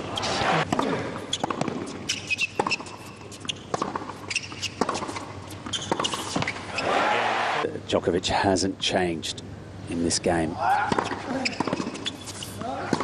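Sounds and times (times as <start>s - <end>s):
tennis racquet strikes: 0.2s - 7.0s
tennis ball bounces: 0.6s - 6.5s
crowd noise: 6.7s - 7.7s.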